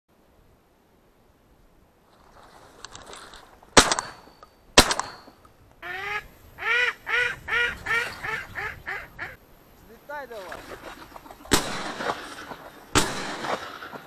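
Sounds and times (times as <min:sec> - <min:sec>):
shotgun shots: 0:03.8 - 0:05.3, 0:11.5 - 0:14.0
duck quacking: 0:05.8 - 0:09.4.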